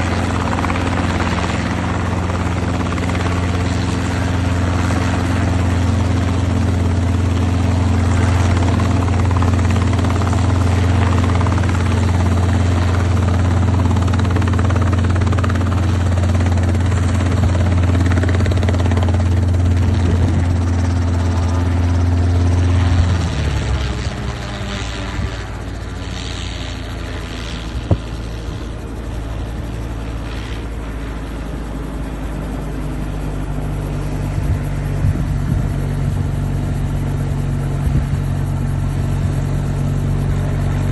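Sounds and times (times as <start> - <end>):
helicopter rotor beat: 0.0 - 40.9.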